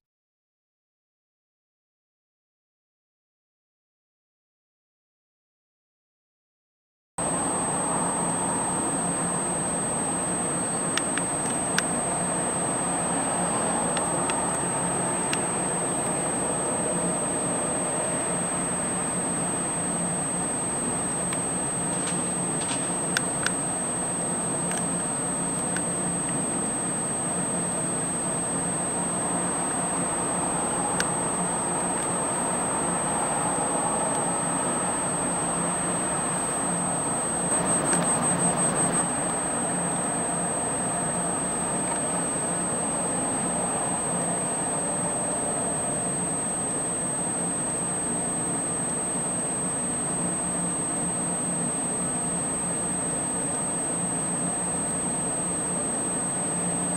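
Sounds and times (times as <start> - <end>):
low hum: 7.2 - 49.1
high-pitched electronic whine: 7.2 - 56.9.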